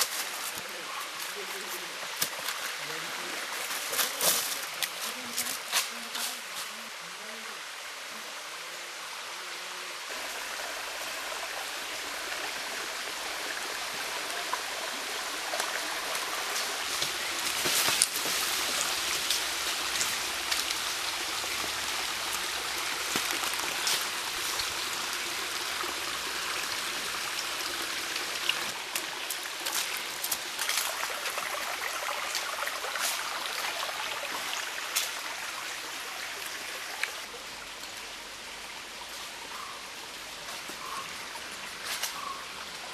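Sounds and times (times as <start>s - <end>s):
footsteps in leaf litter: 0.0s - 6.8s, 16.4s - 21.0s, 22.8s - 24.7s
stream running over rocks: 0.0s - 42.9s.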